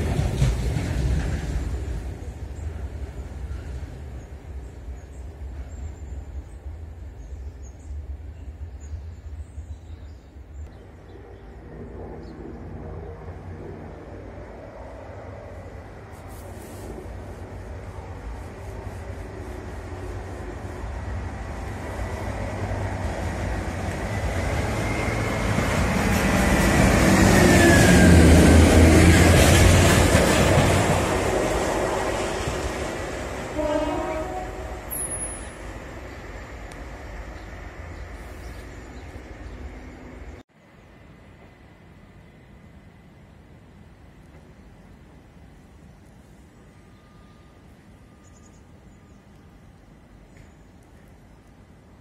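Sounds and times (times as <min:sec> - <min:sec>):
faint bird chirps: 0:46.6 - 0:49.3.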